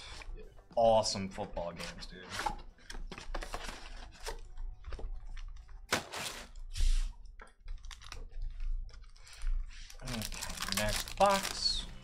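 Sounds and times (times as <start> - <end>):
foil card packs crinkling: 8.9 - 12.0.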